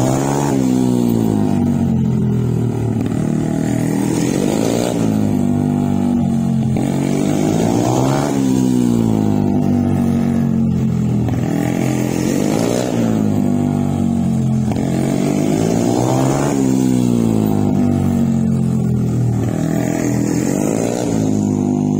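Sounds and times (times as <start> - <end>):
motorcycle engine revving: 0.0 - 21.9.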